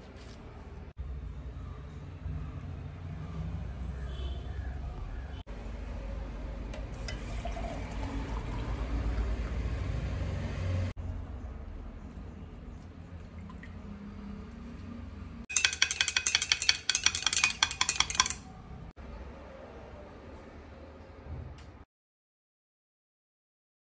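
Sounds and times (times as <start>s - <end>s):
juice poured into a glass mug: 7.0s - 9.6s
metal spoon clinking against glass: 15.5s - 18.6s.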